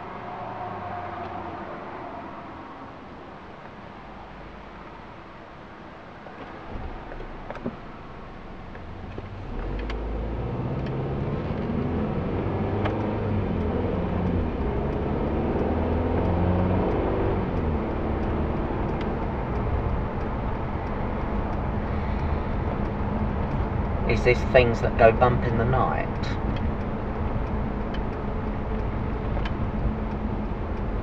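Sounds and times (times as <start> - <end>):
road noise: 0.0 - 31.0
car engine accelerating: 6.4 - 31.0.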